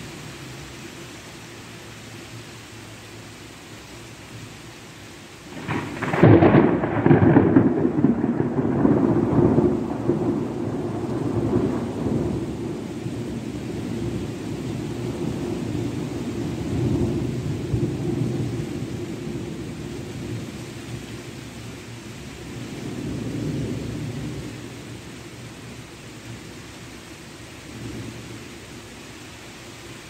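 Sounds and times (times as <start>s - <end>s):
steady hiss: 0.0s - 6.6s
thunder rumbling: 5.5s - 21.3s, 22.4s - 25.6s.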